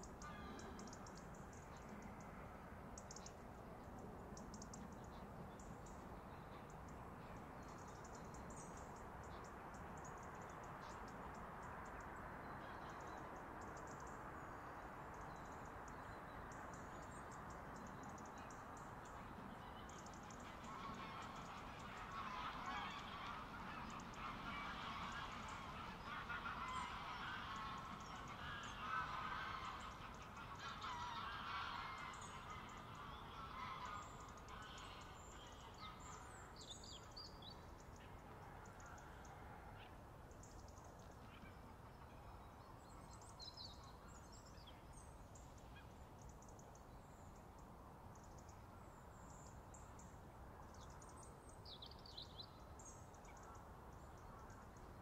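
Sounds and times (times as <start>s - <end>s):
low background noise: 0.0s - 55.0s
geese honking: 19.6s - 36.3s.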